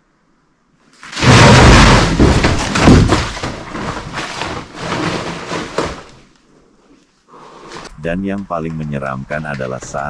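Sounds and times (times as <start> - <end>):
loud banging and thudding: 1.1 - 6.2.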